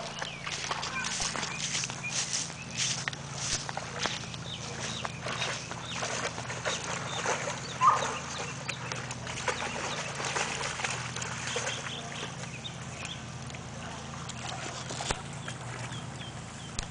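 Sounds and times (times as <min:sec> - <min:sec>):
dogs splashing in water: 0:00.0 - 0:16.9.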